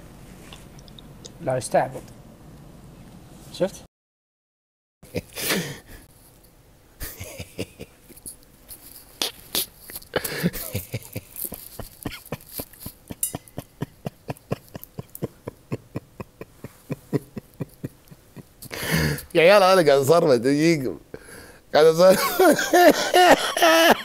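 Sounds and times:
man laughing hard: 7.0 - 8.0, 10.2 - 19.3, 22.1 - 24.0.

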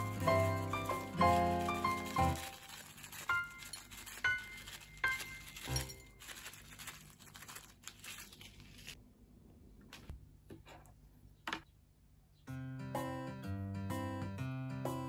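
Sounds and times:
acoustic guitar music: 0.0 - 2.4
crackly rustling: 0.0 - 9.0.

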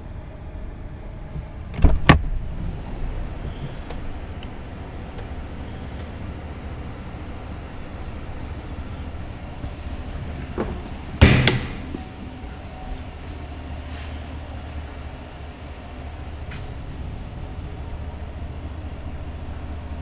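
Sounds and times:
truck engine idling: 2.4 - 20.0
loud knocks: 10.6 - 12.0.

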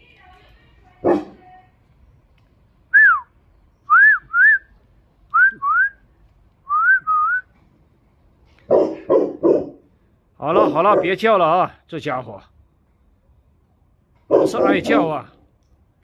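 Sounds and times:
person whistling: 2.9 - 3.3, 3.9 - 4.7, 5.3 - 6.0, 6.7 - 7.5.

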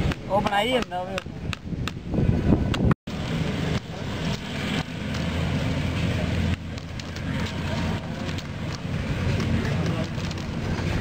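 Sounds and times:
weaving strips crackling and rustling: 4.4 - 11.0.

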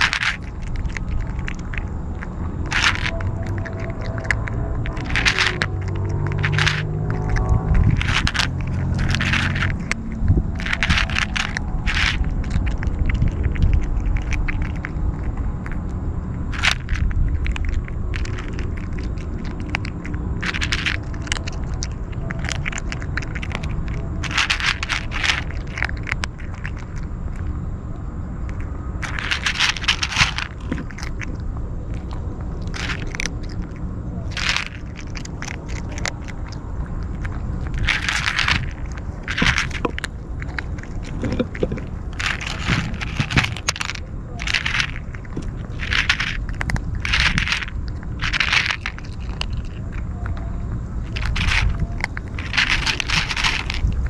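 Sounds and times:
kitten crunching dry kibble: 0.0 - 54.0
low steady rumble: 0.0 - 54.0.

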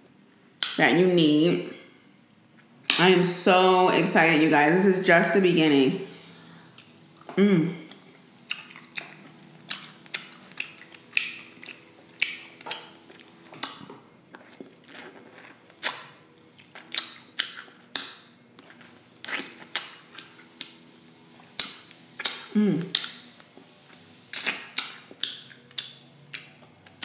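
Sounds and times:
mouth eating sounds: 6.7 - 20.8, 21.6 - 23.4, 24.3 - 27.0.

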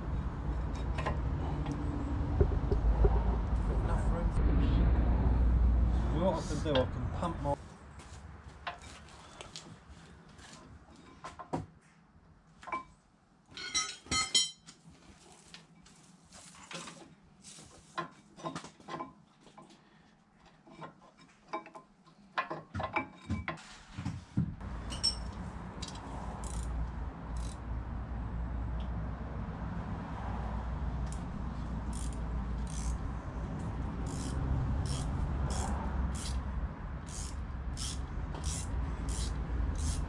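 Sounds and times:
metal tools clinking and knocking: 12.6 - 14.7, 24.8 - 25.4
ringing metallic clinks: 24.8 - 25.4.

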